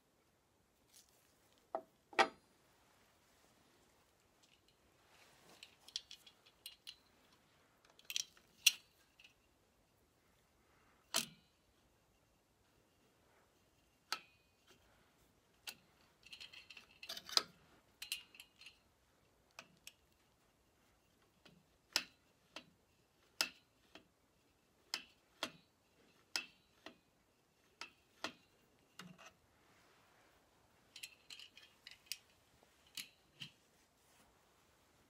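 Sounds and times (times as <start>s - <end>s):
clicks and metallic clinks: 30.9s - 33.5s.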